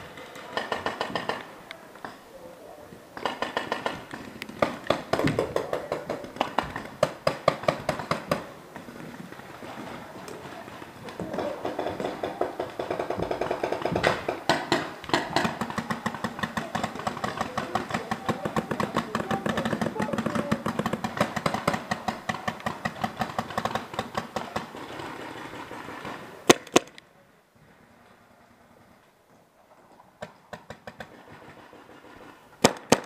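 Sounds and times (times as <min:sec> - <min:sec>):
paintball markers firing: 0:03.2 - 0:09.0, 0:11.1 - 0:27.1, 0:30.2 - 0:33.0.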